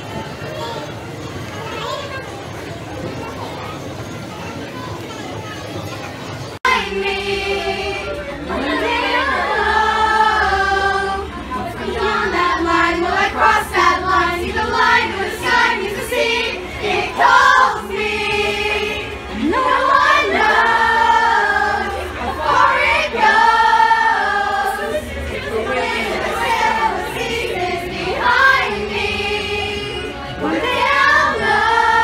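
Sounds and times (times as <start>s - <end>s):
crowd singing in chorus: 6.6s - 32.0s.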